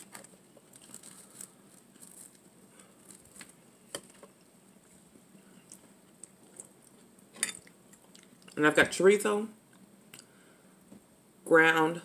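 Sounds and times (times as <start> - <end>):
bread crackling as torn: 0.0 - 4.3.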